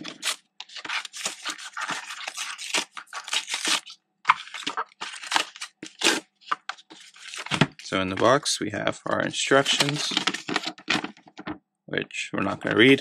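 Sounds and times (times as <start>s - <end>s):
cardboard box tearing: 0.0s - 7.8s.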